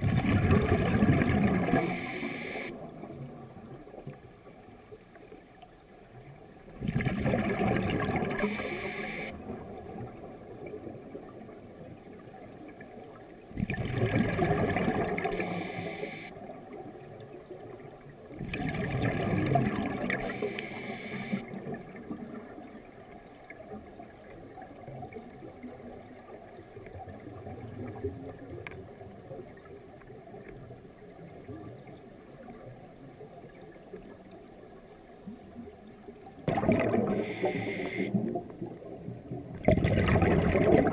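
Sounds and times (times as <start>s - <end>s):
exhaled breath bubbling underwater: 0.0s - 2.7s, 6.8s - 9.3s, 13.6s - 16.3s, 18.4s - 21.5s, 36.5s - 38.4s, 39.6s - 40.9s
faint water murmur: 0.0s - 40.9s.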